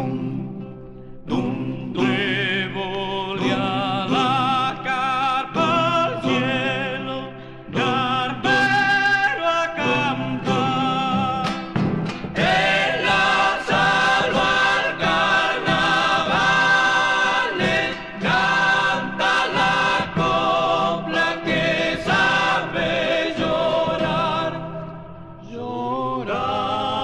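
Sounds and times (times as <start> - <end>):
vocal group singing in harmony: 0.0 - 27.0.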